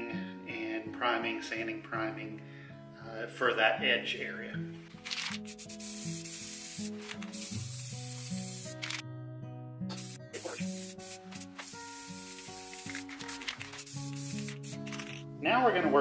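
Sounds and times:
aerosol spray can hissing: 5.0 - 9.0, 9.9 - 15.2.

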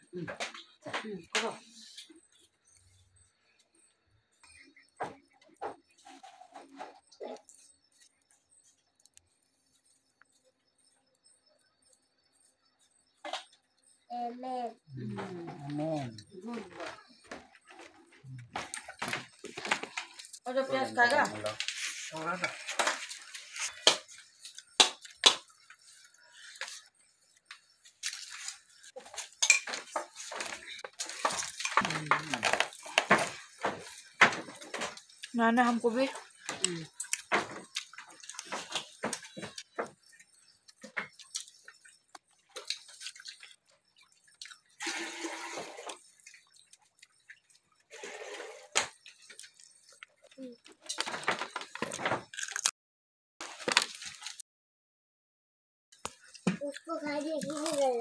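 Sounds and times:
person speaking: 31.8 - 32.6
wet chewing and lip smacks: 36.6 - 44.8
clicks of food being bitten: 40.7 - 43.6.

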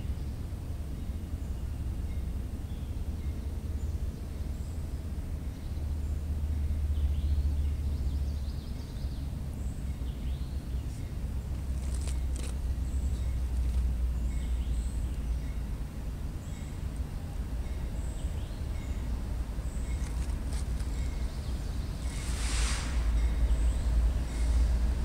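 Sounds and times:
birds chirping: 0.0 - 25.0
distant freight train rumbling: 0.0 - 25.0.

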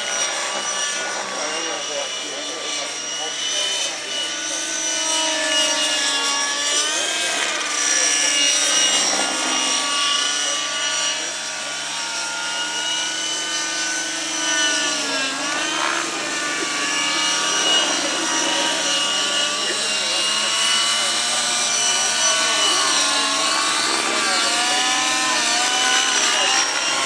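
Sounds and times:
model helicopter rotor whine: 0.0 - 27.0.

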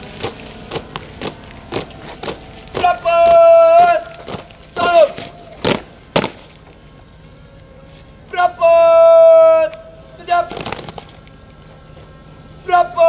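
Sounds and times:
sharp strikes keeping march time: 0.0 - 13.0
person shouting drill commands: 2.7 - 5.8, 8.3 - 10.8, 12.6 - 13.0.

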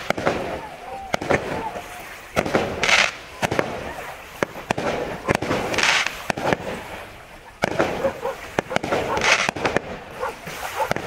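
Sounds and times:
fireworks bangs and pops: 0.0 - 11.0
fireworks hissing crackle: 0.0 - 11.0.

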